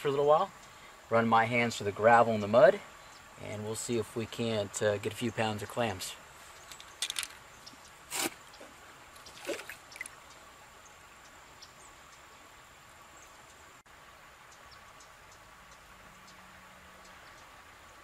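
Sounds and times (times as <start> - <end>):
river trickling: 0.2 - 18.0
hands splashing in water: 9.3 - 10.2.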